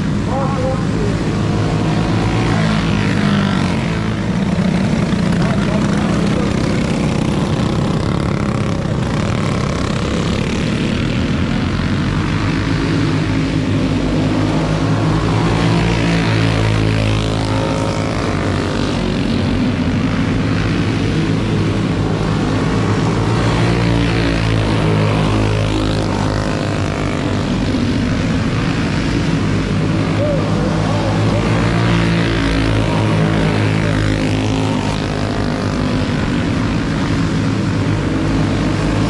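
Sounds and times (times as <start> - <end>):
go-kart engines passing: 0.0 - 39.0.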